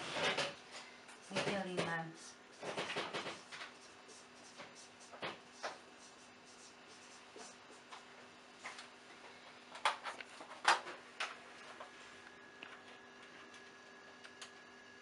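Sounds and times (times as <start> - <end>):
marker on a whiteboard: 3.3 - 8.1.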